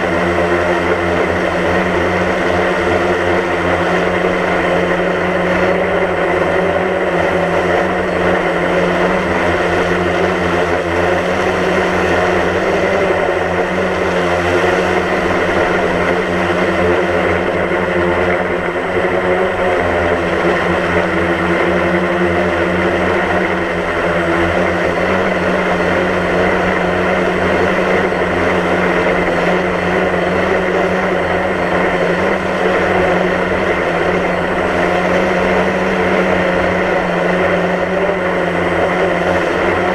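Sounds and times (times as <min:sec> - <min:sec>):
drone propellers whining: 0:00.0 - 0:39.9.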